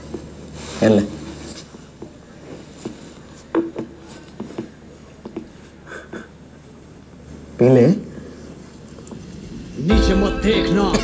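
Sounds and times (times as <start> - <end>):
low steady hum: 4.8 - 11.0.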